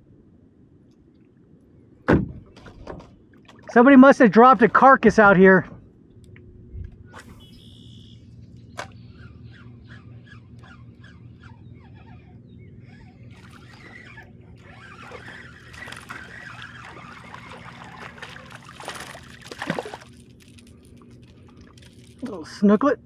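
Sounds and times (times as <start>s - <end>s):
fish splashing in water: 14.6s - 22.2s.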